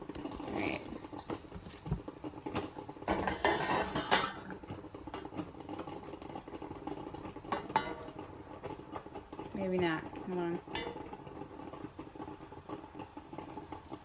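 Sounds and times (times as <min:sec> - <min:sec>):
spatula scraping frying pan: 0:00.4 - 0:05.9.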